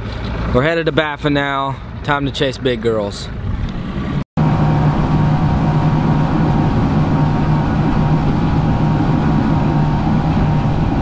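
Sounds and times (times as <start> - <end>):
hull rushing through water: 3.8 - 11.0
outboard motor droning: 3.9 - 11.0.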